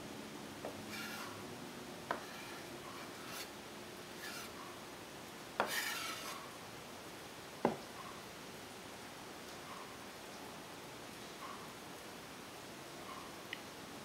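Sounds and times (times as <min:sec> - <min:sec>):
knife scraping wooden board: 0:00.7 - 0:01.4, 0:02.1 - 0:04.8, 0:05.6 - 0:06.4.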